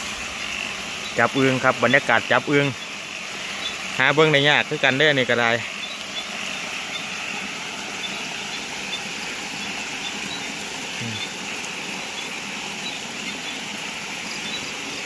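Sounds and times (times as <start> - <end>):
frogs calling: 0.0 - 15.0
insects chirping: 0.0 - 15.0.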